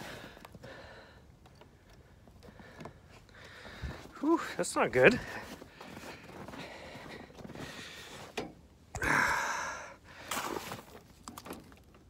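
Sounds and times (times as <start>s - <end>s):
breathy exhale: 9.0s - 10.6s.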